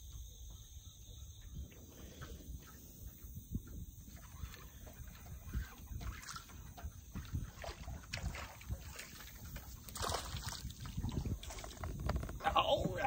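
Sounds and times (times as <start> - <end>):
water sloshing: 1.7 - 13.0
fish splashing: 4.1 - 13.0.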